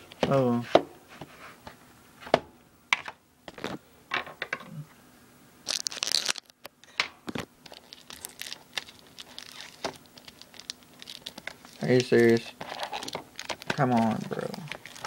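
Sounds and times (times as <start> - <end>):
loud crinkling rustle: 5.6 - 6.6, 7.6 - 15.0
fingers scratching packaging: 7.7 - 15.0.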